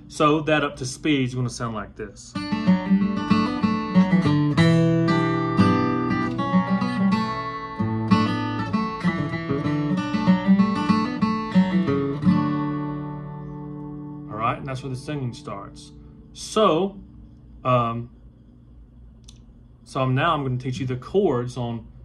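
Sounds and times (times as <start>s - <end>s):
acoustic guitar picking: 2.3s - 17.9s
strummed guitar chord: 2.4s - 16.0s.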